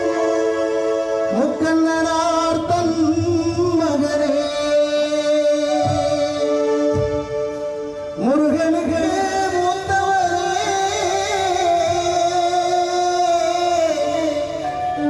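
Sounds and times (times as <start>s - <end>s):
live instrumental accompaniment: 0.0s - 15.0s
man singing with vibrato: 0.0s - 15.0s.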